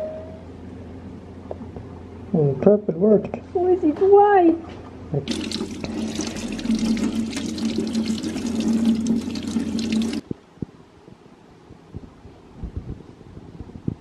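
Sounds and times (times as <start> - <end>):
tap water running into sink: 5.3 - 10.2.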